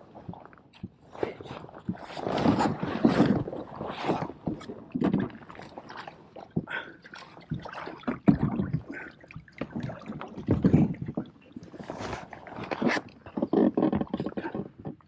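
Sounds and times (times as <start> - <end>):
water splashing against hull: 0.0 - 15.0
kayak knocking and bumping: 7.5 - 15.0.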